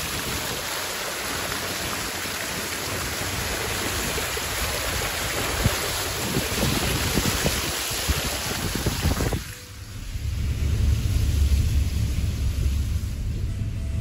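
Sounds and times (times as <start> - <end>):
steady rushing noise: 3.2 - 14.0
wind buffeting microphone: 3.2 - 14.0.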